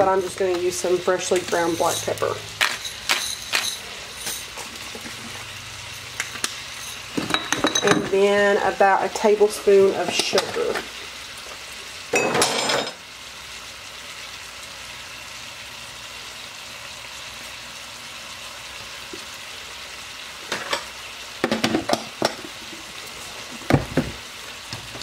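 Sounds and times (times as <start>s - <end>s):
utensil clatter: 0.0s - 5.3s
meat sizzling in a skillet: 0.0s - 25.0s
quick clinks: 2.6s - 4.5s.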